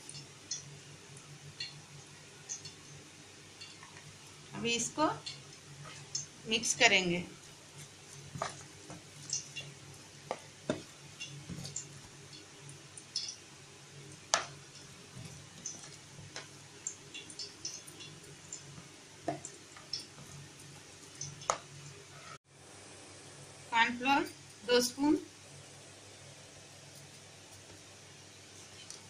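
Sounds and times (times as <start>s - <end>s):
hands mixing chicken in bowl: 14.2s - 21.7s.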